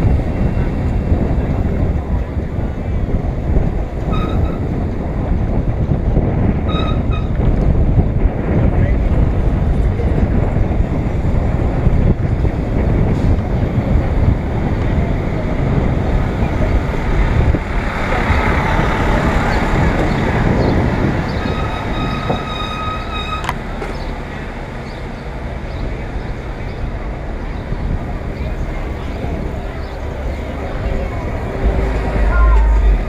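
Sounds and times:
street traffic: 0:00.0 - 0:33.0
wind rumbling on microphone: 0:00.0 - 0:33.0
high-pitched squeal: 0:21.3 - 0:23.6, 0:30.9 - 0:33.0.

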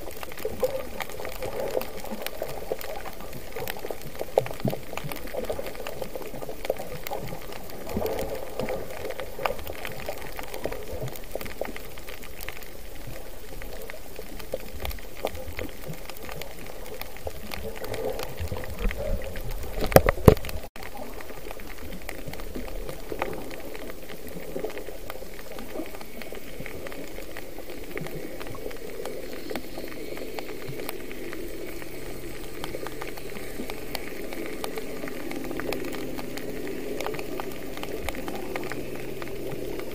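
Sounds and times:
crackles and clicks: 0:00.0 - 0:39.9
muffled underwater noise: 0:00.0 - 0:39.9
water bubbling and rushing: 0:00.0 - 0:39.9.

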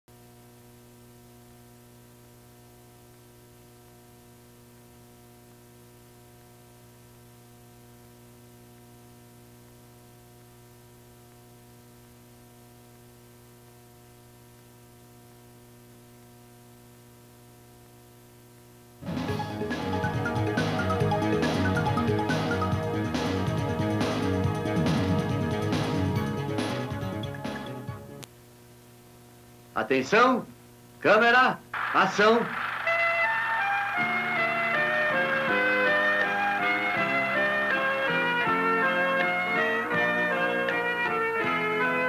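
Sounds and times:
faint electrical hum with hiss: 0:00.1 - 0:19.0, 0:28.0 - 0:42.0.

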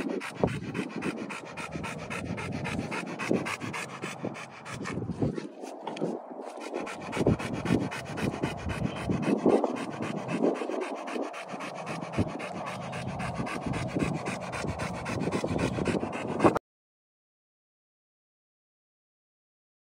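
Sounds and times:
dog panting: 0:00.0 - 0:16.6.

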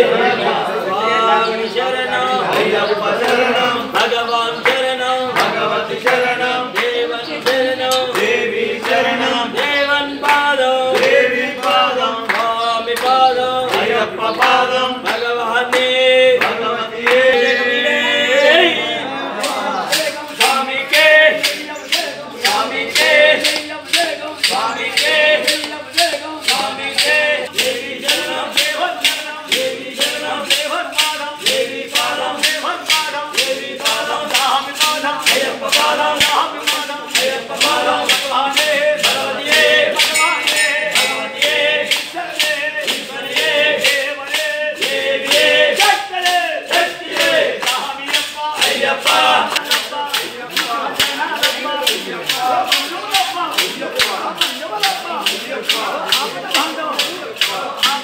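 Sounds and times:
group singing a chant: 0:00.0 - 0:58.0
sharp percussive beat: 0:19.3 - 0:58.0.

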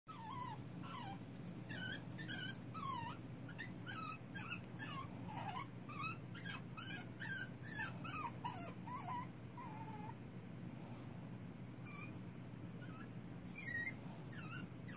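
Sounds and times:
puppy whimpering and crying: 0:00.1 - 0:10.2, 0:11.8 - 0:12.2, 0:12.8 - 0:14.9
steady low hum: 0:00.1 - 0:14.9.

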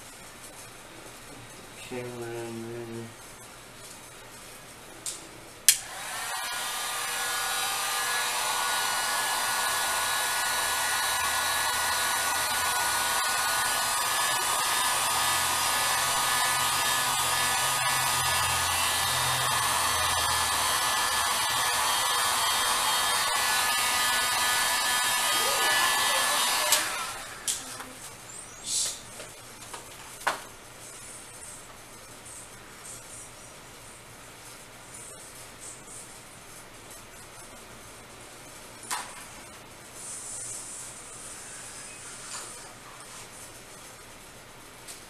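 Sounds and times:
heat gun fan blowing: 0:05.6 - 0:28.1.

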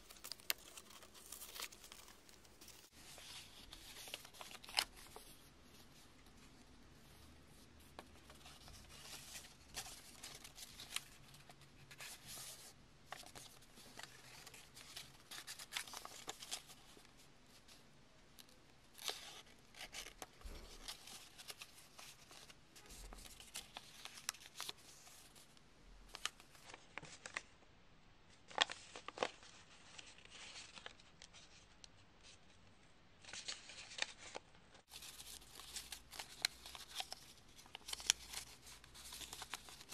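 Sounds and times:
sharp paper crackles: 0:00.0 - 0:05.4, 0:33.2 - 0:39.9
paper rustling and crinkling: 0:00.0 - 0:17.8, 0:18.9 - 0:27.5, 0:28.4 - 0:32.5, 0:33.2 - 0:39.9.

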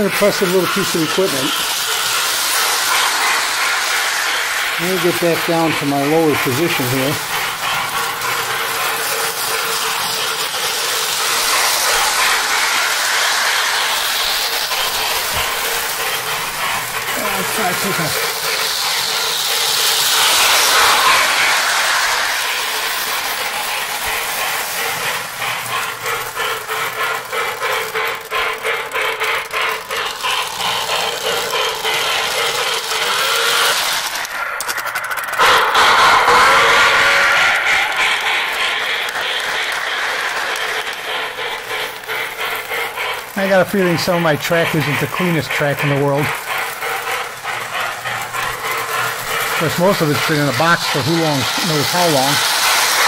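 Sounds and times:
model train whirring and rattling: 0:00.0 - 0:53.0.

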